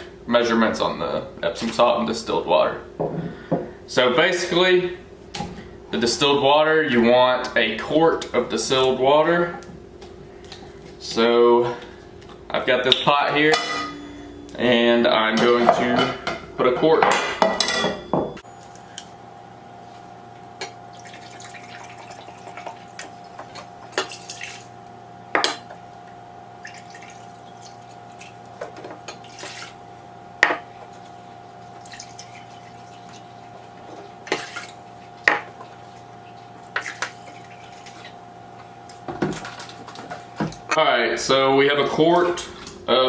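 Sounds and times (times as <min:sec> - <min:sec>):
steady hum: 0:00.0 - 0:43.0
water pouring from a jug: 0:20.9 - 0:23.1, 0:26.6 - 0:28.4, 0:31.8 - 0:33.5
water dripping: 0:26.6 - 0:28.5, 0:30.9 - 0:33.5.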